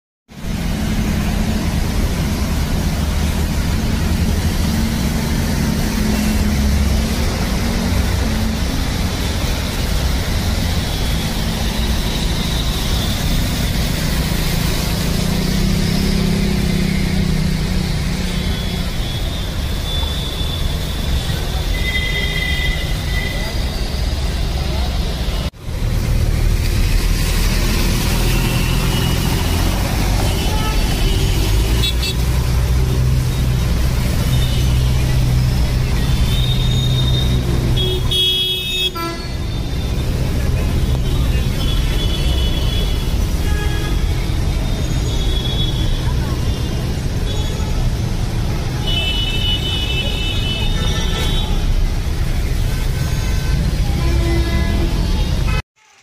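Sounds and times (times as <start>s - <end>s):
water rushing: 0.3s - 55.6s
traffic noise: 0.3s - 56.0s
vehicle horn honking: 37.8s - 39.6s.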